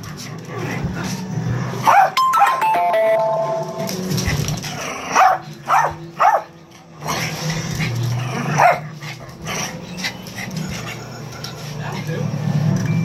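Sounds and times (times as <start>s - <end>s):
small dog barking: 1.8s - 2.2s, 5.2s - 6.5s, 8.6s - 8.8s.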